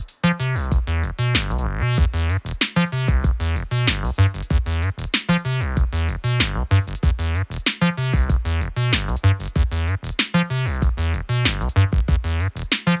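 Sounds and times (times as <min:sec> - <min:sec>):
drum machine beat: 0:00.0 - 0:13.0.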